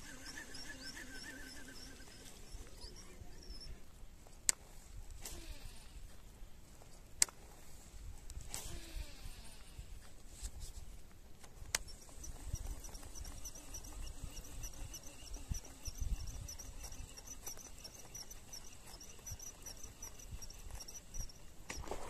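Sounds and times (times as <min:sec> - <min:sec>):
rhythmic high chirping: 0:00.0 - 0:03.8, 0:11.8 - 0:21.8.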